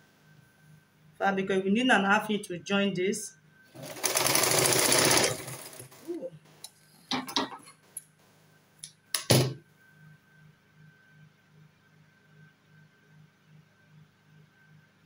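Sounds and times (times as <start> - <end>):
sewing machine stitching: 3.7 - 6.1.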